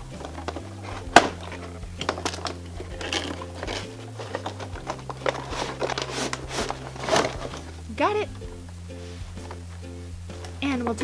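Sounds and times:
packaging clicks: 0:00.0 - 0:07.8
packaging rustling: 0:00.0 - 0:07.8.

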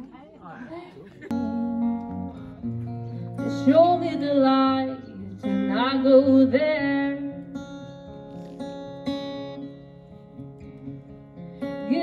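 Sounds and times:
strummed acoustic guitar: 0:01.3 - 0:12.0
woman singing: 0:03.4 - 0:07.4, 0:11.8 - 0:12.0.

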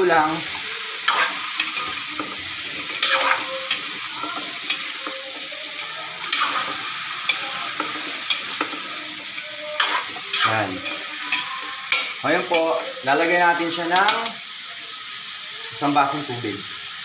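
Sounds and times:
vegetables sizzling in hot oil: 0:00.0 - 0:17.0
metal spatula scraping a wok: 0:01.0 - 0:12.9.

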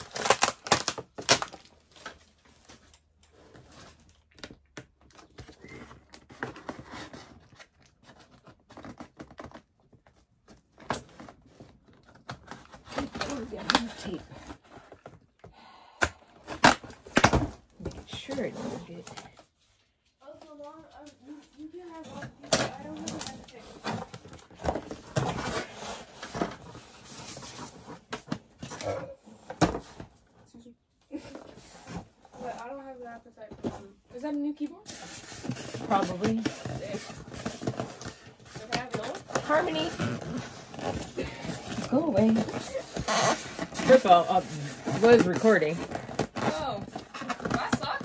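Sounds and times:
scissors cutting plastic wrap: 0:00.0 - 0:02.2, 0:12.0 - 0:14.3, 0:34.9 - 0:48.0
foam packing rustling and scraping: 0:00.0 - 0:15.4, 0:16.4 - 0:48.0.

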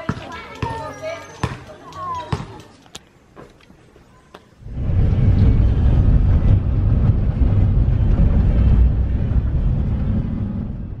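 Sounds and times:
vehicle road and wind noise: 0:04.6 - 0:11.0.

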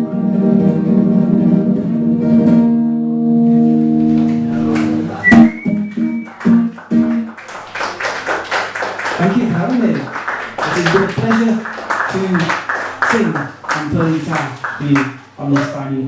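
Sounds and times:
classical guitar strummed: 0:00.0 - 0:07.4.

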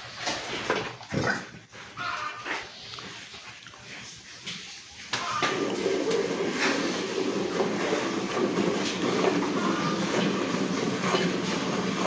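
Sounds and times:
milk squirting into metal pail: 0:05.1 - 0:12.0.

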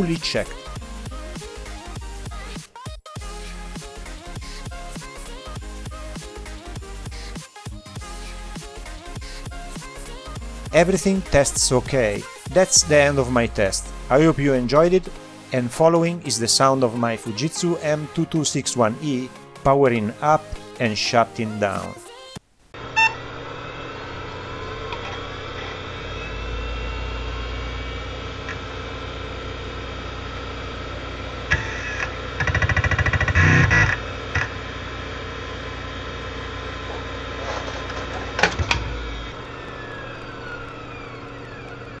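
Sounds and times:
hard drive spindle whine and hum: 0:22.4 - 0:42.0
rapid clicking and buzzing: 0:31.5 - 0:34.6, 0:37.9 - 0:42.0.

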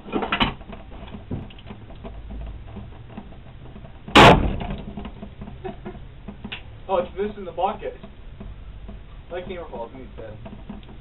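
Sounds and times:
pellet rifle shot: 0:04.2 - 0:04.8.

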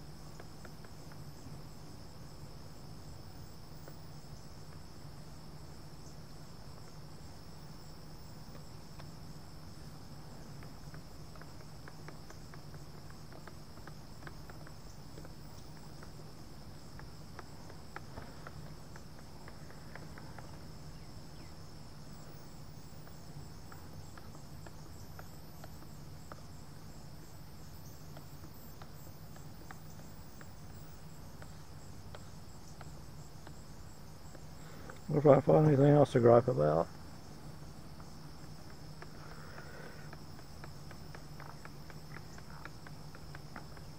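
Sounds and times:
insects chirring: 0:00.0 - 0:43.9
low steady hum: 0:00.0 - 0:43.9.

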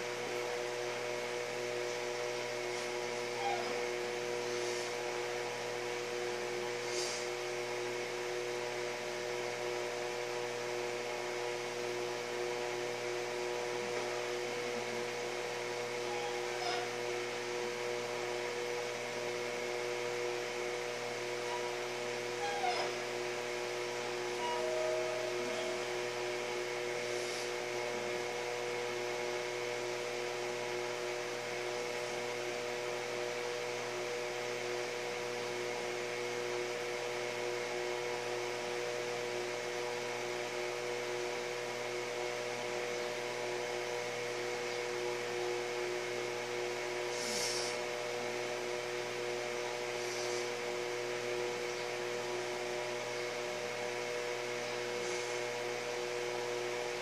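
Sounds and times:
steady hum over hiss: 0:00.0 - 0:57.0
faint short hisses: 0:06.8 - 0:07.3, 0:47.1 - 0:47.8, 0:50.0 - 0:50.6.

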